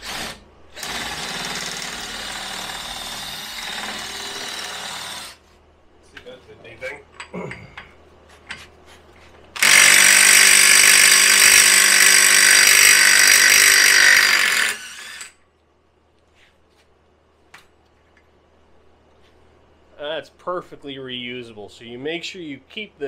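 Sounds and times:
impact wrench hammering: 9.6s - 14.8s.

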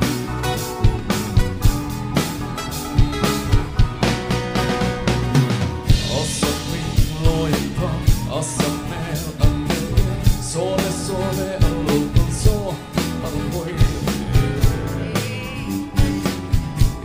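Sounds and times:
bass guitar: 0.0s - 17.0s
cajon beat: 0.0s - 17.0s
guitar: 0.0s - 17.0s
gliding melody line: 12.6s - 17.0s.

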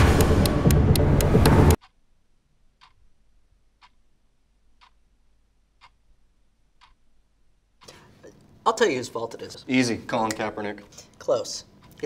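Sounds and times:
music: 0.0s - 1.8s
clock ticking: 0.0s - 2.1s, 2.8s - 5.1s, 5.7s - 7.2s, 7.8s - 12.0s.

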